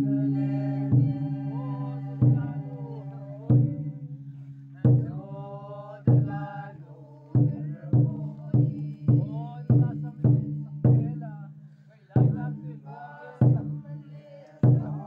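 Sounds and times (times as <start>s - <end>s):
deep drum strokes: 0.0s - 6.8s
group chant-like singing: 0.0s - 10.4s, 12.2s - 15.0s.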